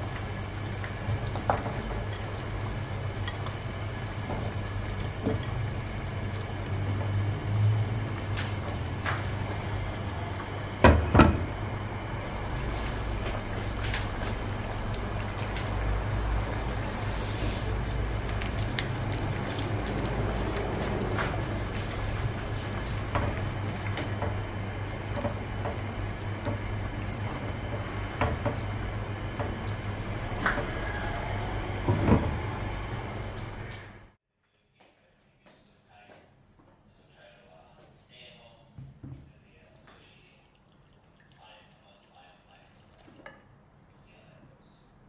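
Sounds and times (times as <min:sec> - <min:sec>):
pan simmering with bubbling pops: 0:00.0 - 0:33.9.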